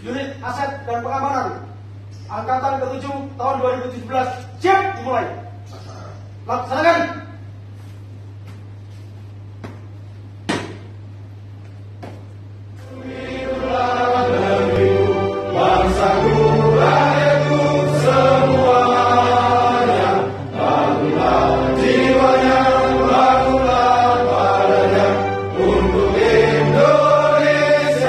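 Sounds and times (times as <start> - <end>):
group singing in unison: 12.8 - 28.0.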